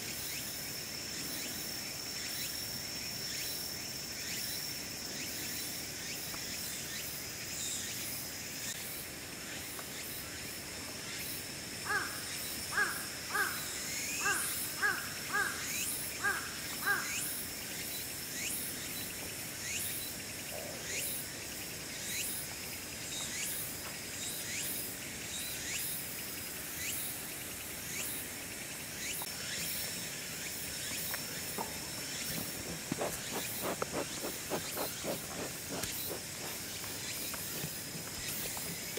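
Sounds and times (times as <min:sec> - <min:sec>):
high insect drone: 0:00.0 - 0:38.9
close scuffling: 0:31.6 - 0:38.9.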